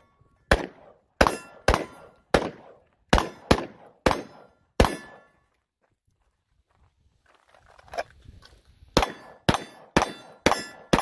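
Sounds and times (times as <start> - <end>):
rifle shots: 0.5 - 5.3, 9.0 - 11.0.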